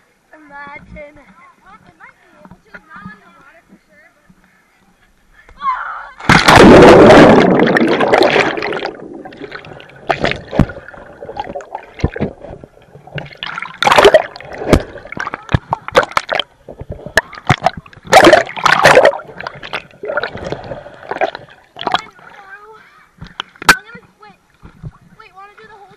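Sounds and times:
loud plunge into water: 0:06.2 - 0:12.4, 0:17.2 - 0:22.0
water splashing and gurgling: 0:06.2 - 0:25.9.

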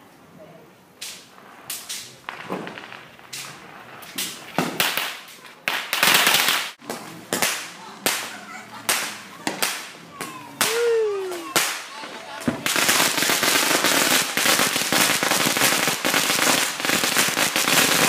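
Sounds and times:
firecrackers cracking: 0:00.9 - 0:18.0
firework hissing burst: 0:12.5 - 0:18.0.

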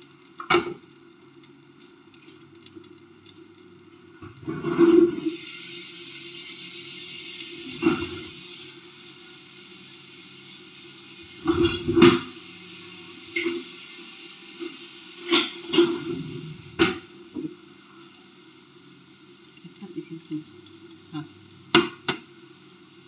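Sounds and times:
food sizzling in a frying pan: 0:00.0 - 0:23.0.

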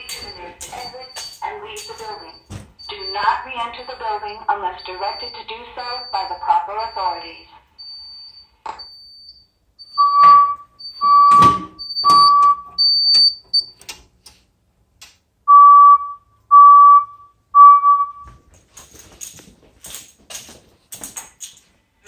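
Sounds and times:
fire alarm beeps: 0:00.0 - 0:13.8, 0:15.5 - 0:18.5.

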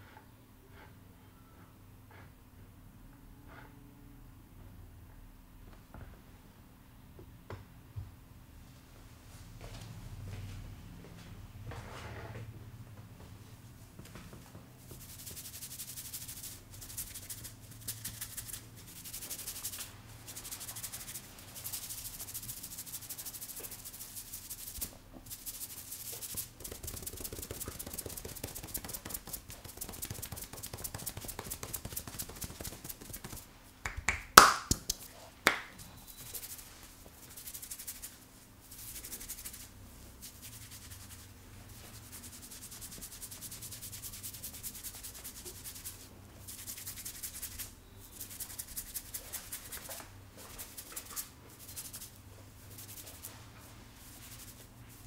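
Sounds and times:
fingers rustling through hair: 0:14.4 - 0:55.0.

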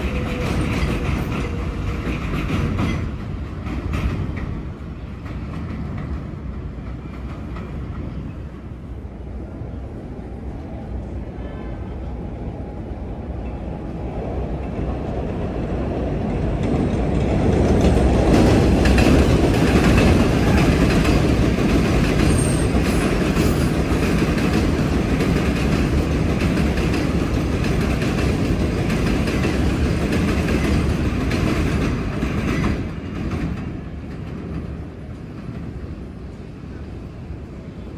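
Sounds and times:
train wheels clacking over rail joints: 0:00.0 - 0:07.8, 0:16.4 - 0:34.8.

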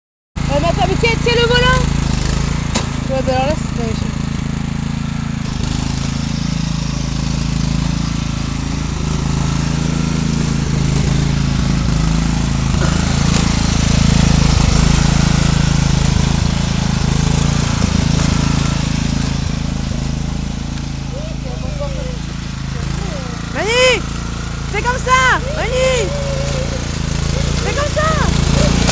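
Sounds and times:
riding lawn mower engine: 0:00.4 - 0:28.9.

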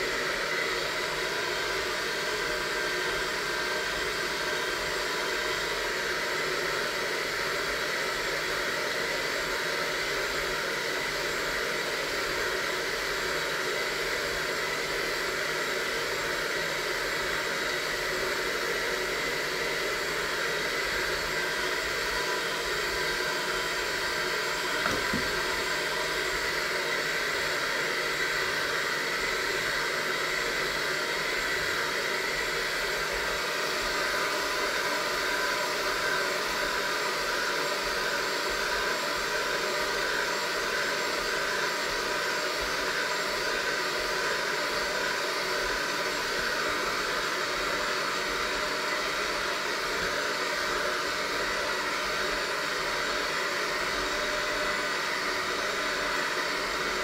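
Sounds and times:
electric hand mixer running: 0:00.0 - 0:57.0.

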